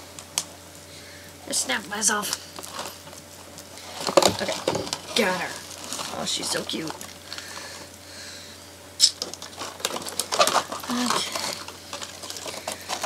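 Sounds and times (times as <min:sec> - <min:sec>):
plastic packaging rustling: 0:02.2 - 0:08.1, 0:09.0 - 0:13.0.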